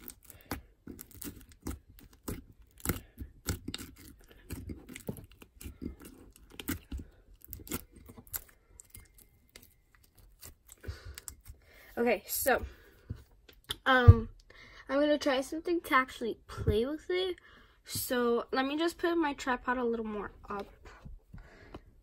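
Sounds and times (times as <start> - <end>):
slime crunching and crackling: 0.0 - 11.6.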